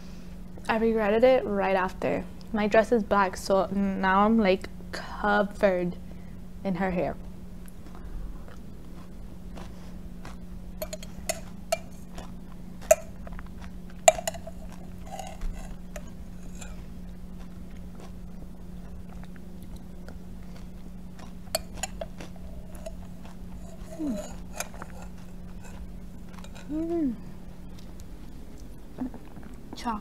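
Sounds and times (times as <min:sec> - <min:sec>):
steady low hum: 0:00.0 - 0:30.0
metal spoon clinking on glass: 0:10.8 - 0:11.9, 0:14.1 - 0:15.7.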